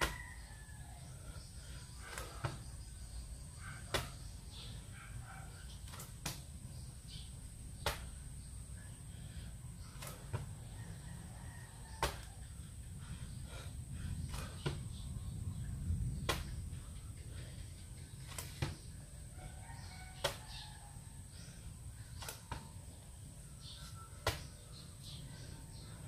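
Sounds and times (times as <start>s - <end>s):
steady low hum: 0.0s - 26.0s
hands and feet slapping floor: 3.9s - 4.2s, 5.8s - 6.6s, 7.8s - 8.2s, 10.0s - 10.5s, 12.0s - 12.3s, 16.2s - 16.6s, 18.2s - 18.8s, 20.2s - 20.4s, 22.2s - 22.7s, 24.2s - 24.5s.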